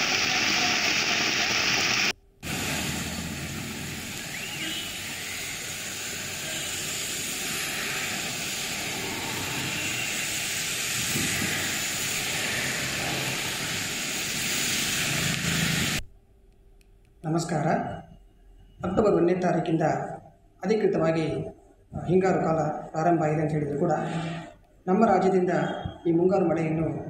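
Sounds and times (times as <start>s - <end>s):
heavy rain pouring: 0.0s - 16.0s
vehicles passing on wet roads: 2.5s - 5.4s.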